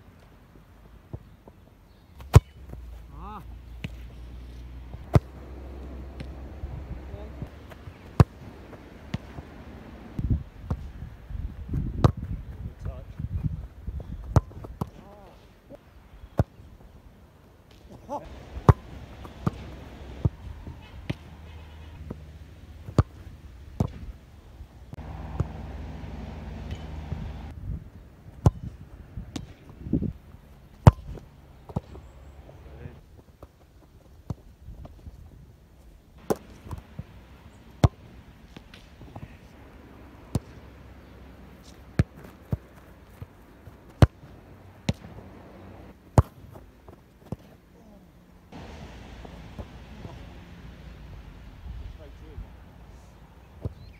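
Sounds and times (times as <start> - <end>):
ball hitting goalkeeper gloves: 2.2 - 2.8, 5.0 - 6.4, 7.1 - 8.4, 17.7 - 21.4, 22.8 - 24.1, 25.0 - 25.7, 26.5 - 27.2, 28.4 - 29.7, 30.8 - 32.0, 40.3 - 40.6, 41.5 - 45.2, 46.1 - 47.6
football kick thuds: 2.2 - 2.8, 11.7 - 15.0, 17.7 - 21.3, 23.8 - 24.2, 28.4 - 30.1, 30.8 - 32.0, 41.6 - 45.2, 46.1 - 47.5
boot kicking football: 2.2 - 2.9, 30.7 - 32.0, 41.6 - 45.2, 46.1 - 47.6.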